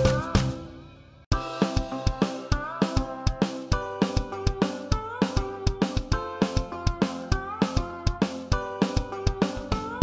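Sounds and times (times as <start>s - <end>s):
background music with quick beat: 0.0s - 10.0s.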